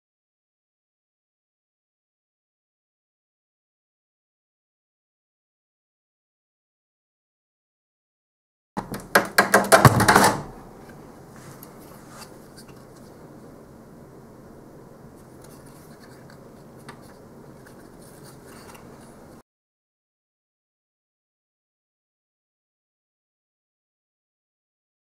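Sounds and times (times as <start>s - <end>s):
faint handling noise: 10.0s - 13.2s, 15.1s - 19.4s.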